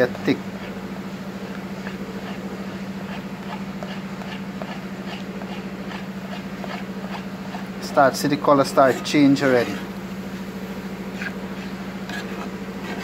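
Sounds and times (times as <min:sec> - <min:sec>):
low hum: 0:00.1 - 0:13.0
spoon scraping pan: 0:11.1 - 0:13.0.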